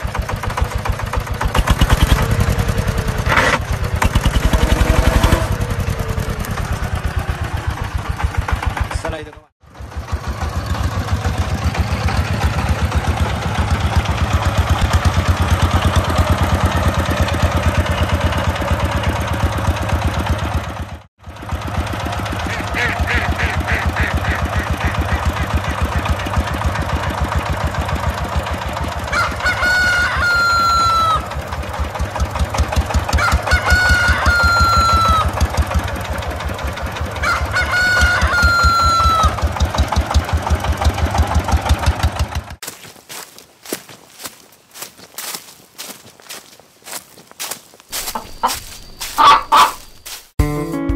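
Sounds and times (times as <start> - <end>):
tractor engine chugging: 0.0 - 50.4
chickens clucking: 22.3 - 27.3, 28.3 - 40.1, 47.9 - 50.2
rooster crowing: 29.0 - 31.4, 33.1 - 35.4, 37.0 - 39.5, 48.0 - 49.8.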